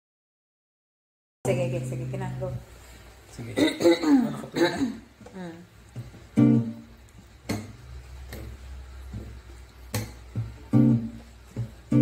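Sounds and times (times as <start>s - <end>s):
classical guitar strummed chords: 6.0s - 12.0s.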